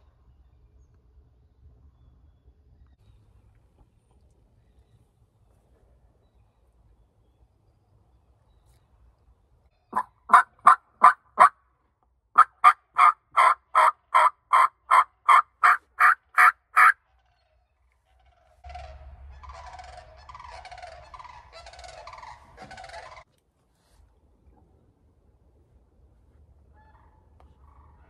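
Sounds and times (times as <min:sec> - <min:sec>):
turkey call yelps: 0:09.9 - 0:11.6, 0:12.4 - 0:17.5, 0:18.2 - 0:23.3, 0:26.7 - 0:28.0
low rumble: 0:18.0 - 0:23.2.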